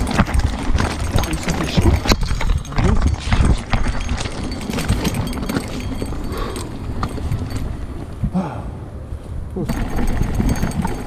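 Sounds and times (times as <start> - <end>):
tyres crunching over stones: 0.0 - 7.8
bike rattling: 0.0 - 8.2, 9.6 - 11.0.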